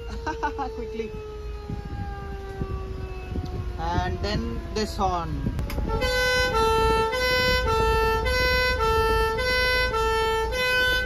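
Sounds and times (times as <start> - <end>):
fire truck two-tone horn: 5.7 - 11.0.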